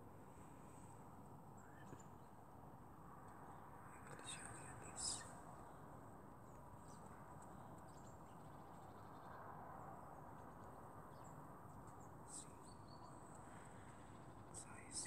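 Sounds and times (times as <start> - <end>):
faint background hiss: 0.0 - 15.0.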